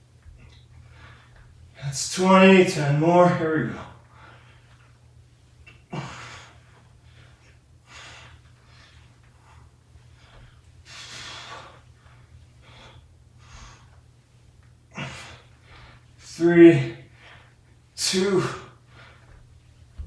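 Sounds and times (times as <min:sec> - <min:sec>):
faint low hum: 0:00.0 - 0:20.0
man breathing hard: 0:00.4 - 0:01.6, 0:04.0 - 0:05.0, 0:05.8 - 0:14.0, 0:14.9 - 0:16.3, 0:18.3 - 0:19.4.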